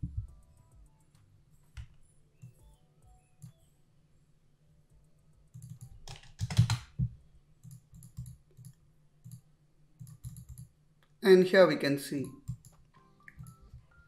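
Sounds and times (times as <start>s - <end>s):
computer keyboard typing: 5.4s - 7.0s, 7.6s - 9.4s, 10.0s - 10.7s, 12.4s - 13.6s.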